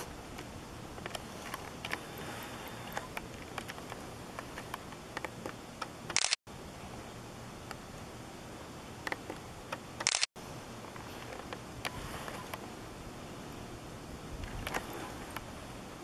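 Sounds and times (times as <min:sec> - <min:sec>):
steady hiss: 0:00.0 - 0:16.0
camera click: 0:02.9 - 0:06.4, 0:10.0 - 0:10.3.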